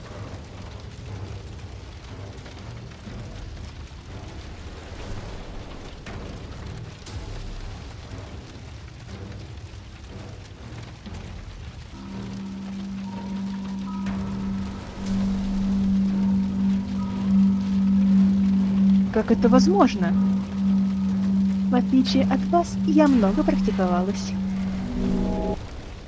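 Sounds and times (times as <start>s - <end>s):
background music: 0.0s - 26.0s
low rumble of flames: 0.0s - 26.0s.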